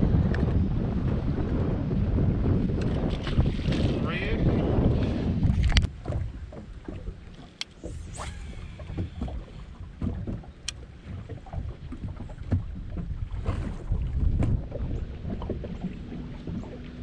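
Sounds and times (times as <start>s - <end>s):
wind on microphone: 0.0s - 17.0s
water slapping against boat hull: 2.6s - 17.0s.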